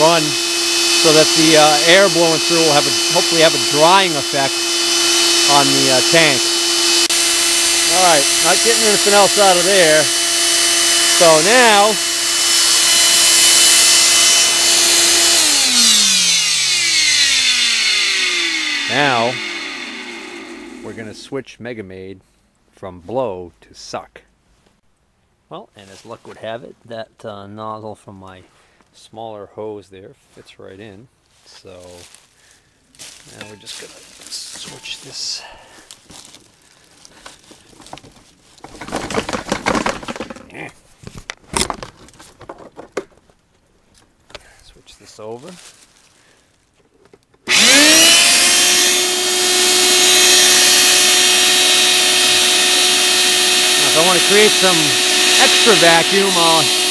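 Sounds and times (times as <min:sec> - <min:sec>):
shop vacuum spinning down: 0:00.0 - 0:21.3, 0:47.5 - 0:56.9
hose rustling and scraping: 0:31.2 - 0:41.2, 0:45.2 - 0:46.8.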